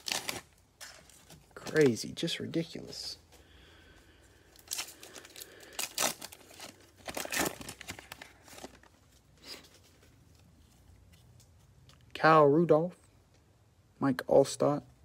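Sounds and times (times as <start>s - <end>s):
plastic wrapper tearing and crinkling: 0.0s - 2.2s, 4.6s - 9.2s.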